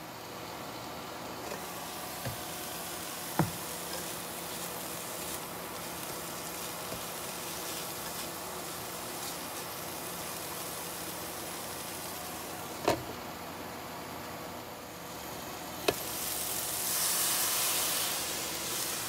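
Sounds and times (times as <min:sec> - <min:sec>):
onions sizzling in a skillet: 0:01.4 - 0:12.8, 0:14.9 - 0:19.0
spatula stirring: 0:01.6 - 0:11.2.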